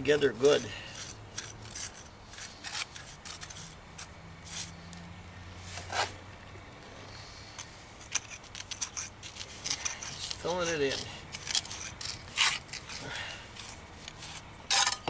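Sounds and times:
trowel scraping stone: 0:00.1 - 0:04.8, 0:05.6 - 0:06.2, 0:07.6 - 0:15.0.

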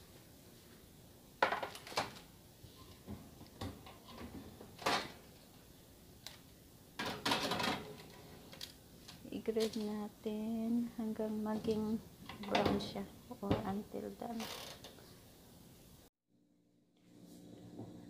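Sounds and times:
oven door handling: 0:12.3 - 0:13.8.

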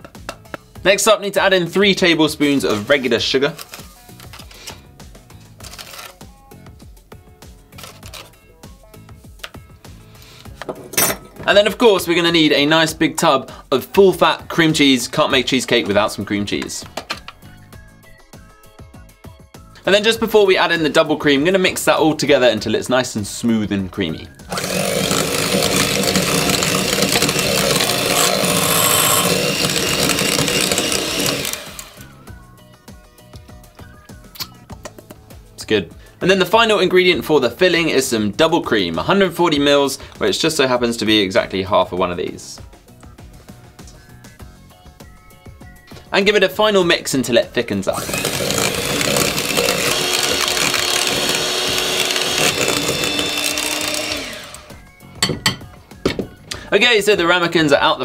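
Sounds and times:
electric hand mixer whirring: 0:24.4 - 0:32.3, 0:47.9 - 0:55.1.

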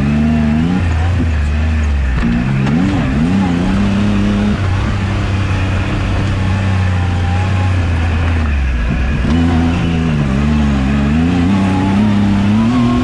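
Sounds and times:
engine revving: 0:00.0 - 0:13.0.

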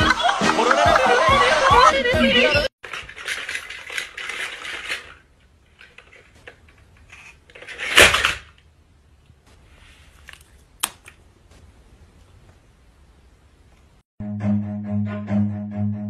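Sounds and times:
plastic toy clattering on floor: 0:02.8 - 0:08.6.

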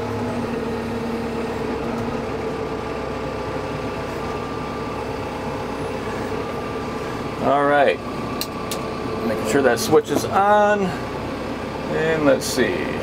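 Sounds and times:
hydraulic whine: 0:00.0 - 0:11.8
tractor diesel engine running: 0:00.0 - 0:13.0.

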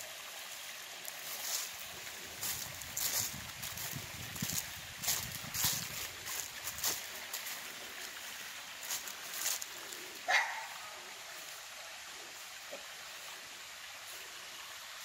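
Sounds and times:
creek trickling: 0:00.0 - 0:15.0
footsteps in dry leaves: 0:00.2 - 0:12.6
dog barking: 0:10.2 - 0:11.0.

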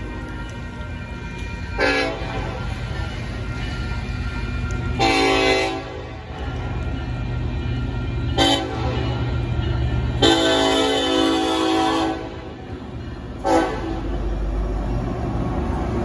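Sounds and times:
low rumble of train: 0:00.0 - 0:16.0
locomotive horn blasts: 0:01.8 - 0:02.6, 0:04.9 - 0:06.3, 0:08.3 - 0:09.2, 0:10.2 - 0:12.6, 0:13.4 - 0:14.2.

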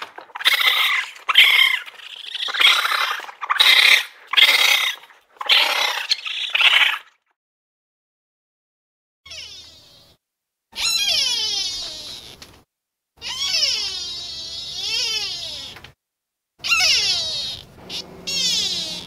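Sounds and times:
animal raspy screeching calls: 0:00.0 - 0:07.2, 0:10.8 - 0:12.5, 0:13.2 - 0:15.9, 0:16.6 - 0:19.0.

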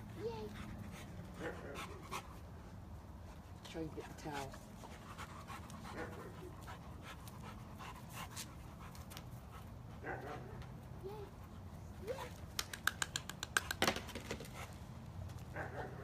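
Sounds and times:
dog panting: 0:00.2 - 0:12.2.

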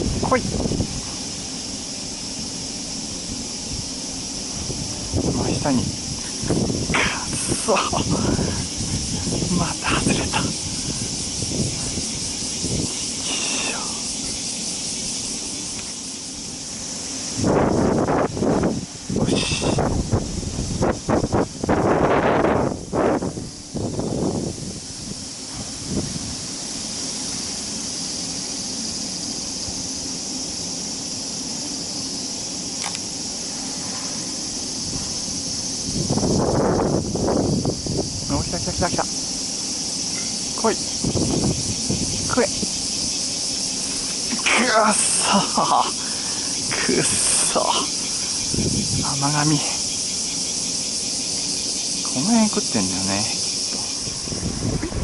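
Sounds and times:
wind rumble on microphone: 0:00.0 - 0:27.7, 0:32.9 - 0:44.6, 0:46.1 - 0:50.2, 0:53.2 - 0:55.0
insects buzzing: 0:00.0 - 0:55.0
click: 0:32.8 - 0:33.0.

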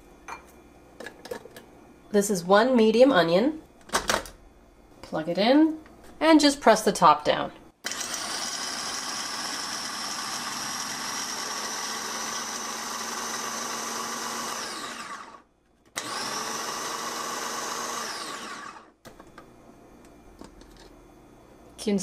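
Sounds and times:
electric chopper motor running: 0:07.8 - 0:15.4, 0:16.0 - 0:18.9.

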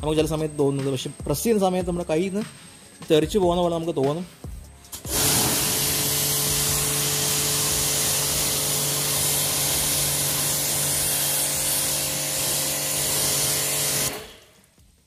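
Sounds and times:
pressure washer motor hum: 0:05.0 - 0:14.6
pressure washer spray hiss: 0:05.0 - 0:14.6.

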